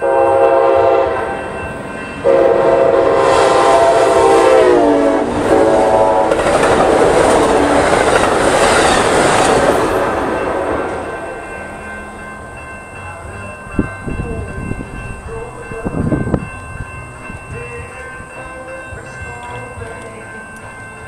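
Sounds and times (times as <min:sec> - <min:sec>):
train passing: 0:00.0 - 0:21.0
steady high tones: 0:08.4 - 0:21.0
wind buffeting microphone: 0:13.6 - 0:18.3.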